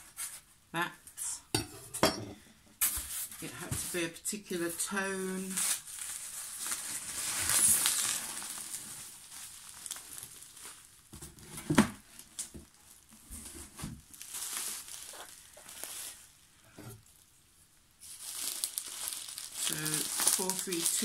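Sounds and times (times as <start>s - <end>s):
bubble wrap crinkling: 4.6s - 21.0s.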